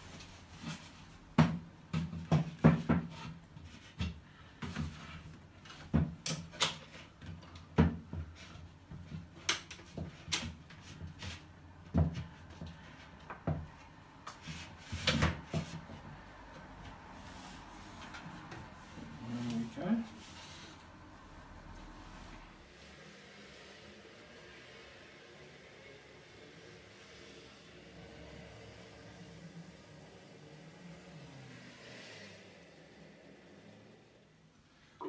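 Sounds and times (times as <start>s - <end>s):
wooden knocks and bumps: 1.4s - 3.3s.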